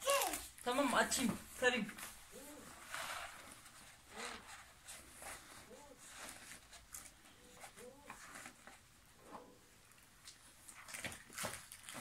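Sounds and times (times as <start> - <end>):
toddler vocal sounds: 0.0 - 0.6
paper poster rustling: 0.0 - 8.9.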